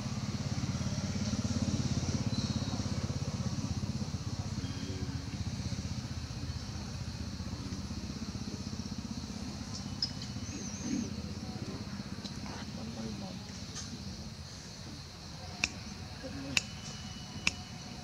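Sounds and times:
small engine running: 0:00.0 - 0:12.2.

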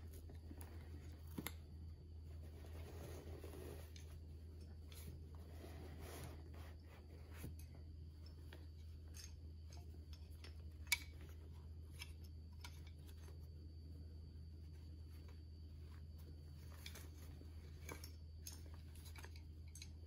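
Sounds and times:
steady low hum: 0:00.0 - 0:20.0
action figure handling rubbing: 0:02.4 - 0:07.6.

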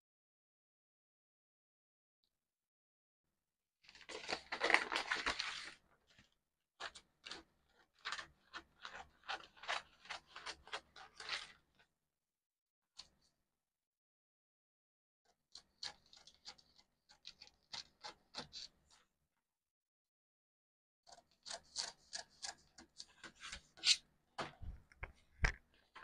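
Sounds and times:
pencil scratching on paper: 0:21.1 - 0:24.0.

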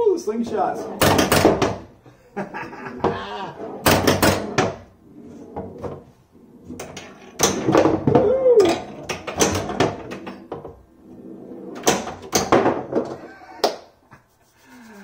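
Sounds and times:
person exclaiming: 0:03.1 - 0:03.6, 0:08.2 - 0:08.8
pinball solenoids clacking: 0:06.8 - 0:10.7.

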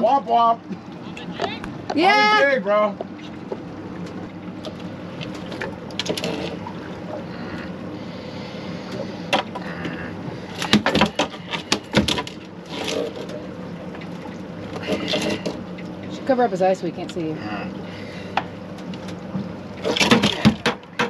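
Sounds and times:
boat background hum: 0:00.0 - 0:21.0
fish knocking and slapping on deck: 0:08.9 - 0:10.0, 0:10.6 - 0:13.4, 0:18.3 - 0:21.0.

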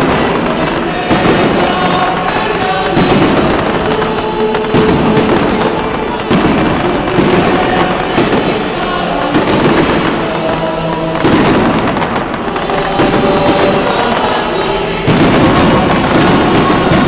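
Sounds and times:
fireworks crackling and popping: 0:00.0 - 0:17.0
heavy firework bangs: 0:00.0 - 0:17.0.

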